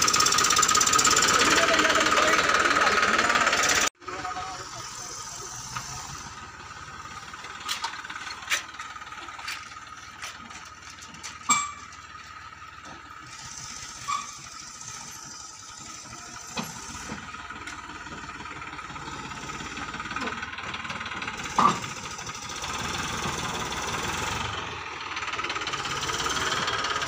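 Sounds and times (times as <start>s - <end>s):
tractor diesel engine running: 0.0s - 27.0s
sharp metal clanks: 7.6s - 12.1s.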